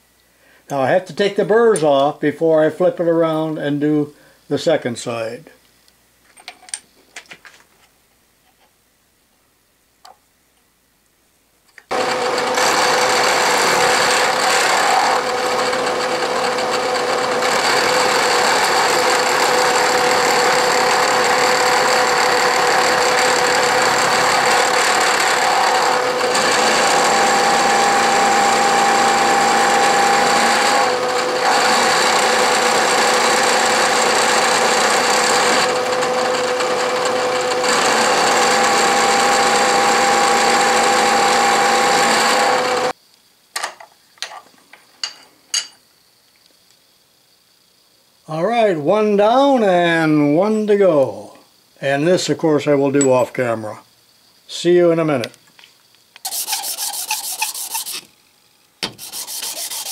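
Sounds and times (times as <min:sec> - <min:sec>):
milling machine cutting steel: 0:11.9 - 0:42.9, 0:56.3 - 0:58.1, 0:58.9 - 0:59.9.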